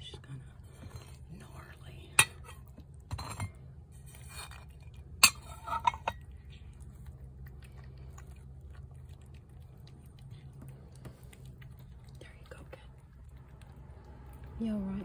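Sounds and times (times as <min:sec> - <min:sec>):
faint steady hum: 0:00.0 - 0:15.0
ceramic plate clinking: 0:02.2 - 0:03.6, 0:05.2 - 0:06.3.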